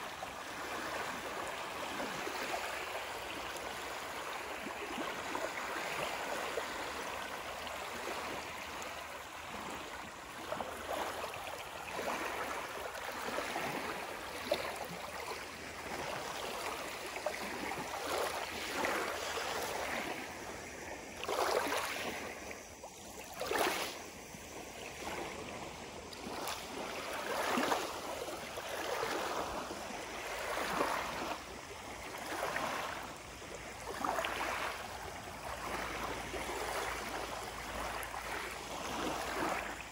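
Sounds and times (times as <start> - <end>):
waves lapping on pebble shore: 0.0 - 39.9.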